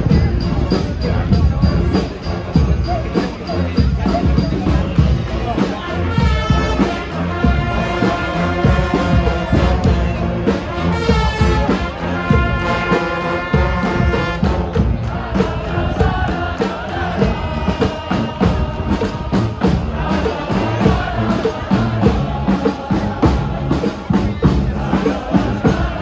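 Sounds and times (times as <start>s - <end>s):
drum beat: 0.0s - 26.0s
brass horns playing: 5.8s - 23.9s.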